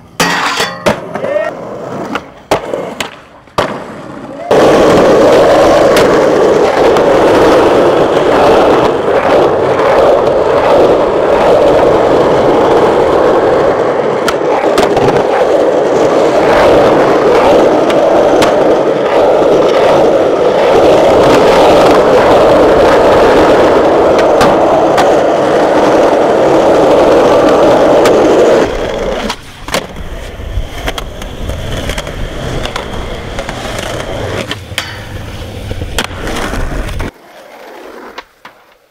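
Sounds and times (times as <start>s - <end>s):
skateboard wheels rolling on asphalt: 0.0s - 38.9s.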